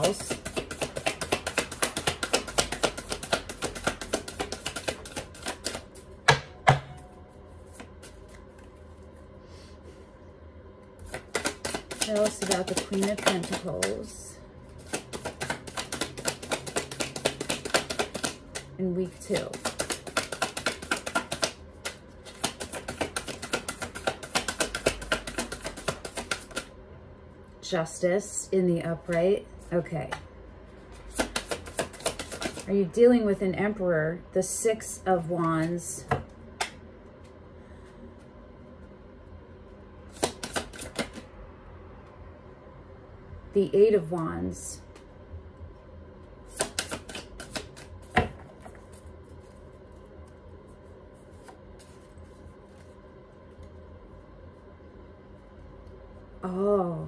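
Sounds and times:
cards being shuffled: 0:00.0 - 0:06.1, 0:07.6 - 0:08.7, 0:11.0 - 0:14.1, 0:14.8 - 0:26.7, 0:31.0 - 0:32.7, 0:40.1 - 0:41.3, 0:46.5 - 0:53.0.

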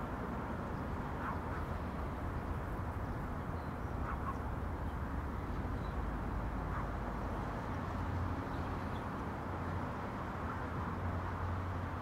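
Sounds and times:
distant road traffic: 0:00.0 - 0:12.0
wind: 0:00.0 - 0:12.0
faint bird calls: 0:01.1 - 0:01.8, 0:03.0 - 0:05.0.

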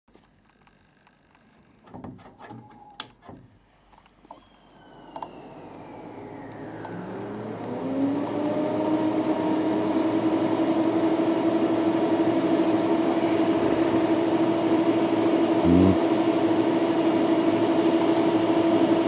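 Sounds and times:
motors spinning up hum: 0:04.2 - 0:16.0.

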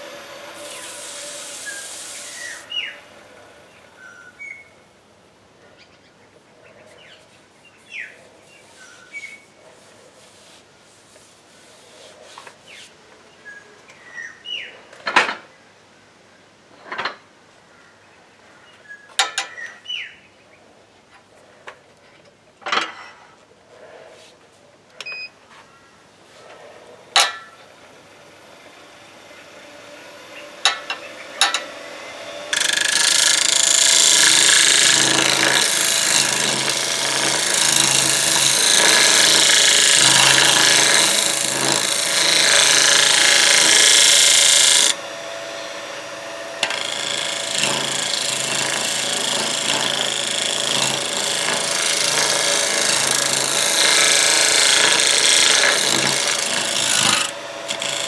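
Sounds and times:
wood shaving hiss on lathe: 0:00.0 - 0:02.9, 0:32.3 - 0:45.0, 0:46.1 - 0:58.0
lathe low hum: 0:27.7 - 0:58.0.

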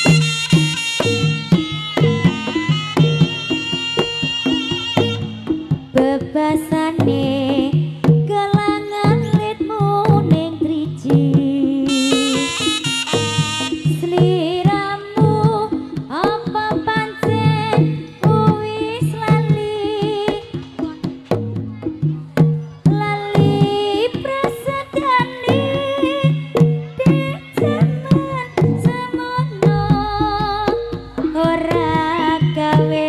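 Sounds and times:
wavering melody: 0:00.0 - 0:06.5, 0:11.9 - 0:15.0, 0:26.0 - 0:33.0
hand drums beating: 0:00.0 - 0:33.0
low pulse: 0:29.6 - 0:32.4.

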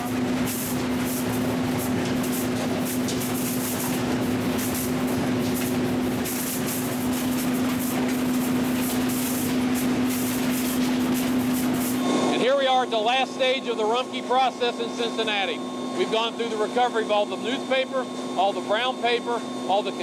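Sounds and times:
machine hum: 0:00.0 - 0:20.0
compressed air blasts hissing: 0:00.5 - 0:12.1.

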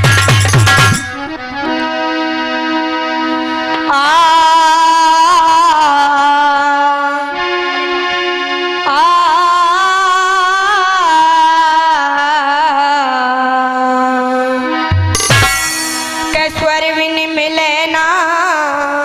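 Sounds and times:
harmonium chords: 0:00.0 - 0:19.0
girl singing: 0:08.9 - 0:14.3, 0:16.3 - 0:19.0.

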